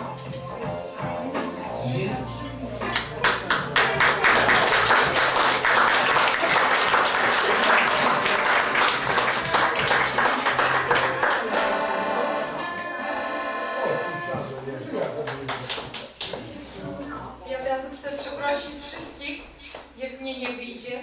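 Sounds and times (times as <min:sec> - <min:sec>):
keyboard music with held notes: 0:00.0 - 0:03.7, 0:07.4 - 0:14.8
audience applauding: 0:03.0 - 0:13.0, 0:15.2 - 0:16.1.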